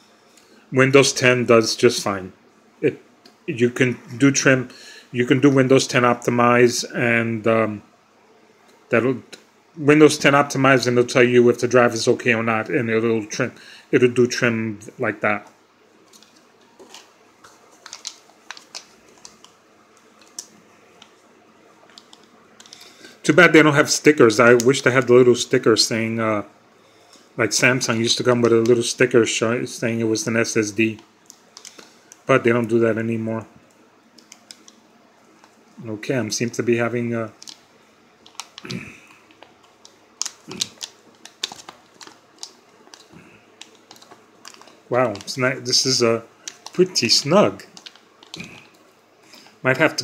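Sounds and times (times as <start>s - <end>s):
plastic packaging clicks and crinkles: 16.1s - 21.2s, 21.9s - 23.0s, 30.9s - 32.2s, 37.4s - 37.6s, 38.2s - 47.0s, 47.6s - 49.6s.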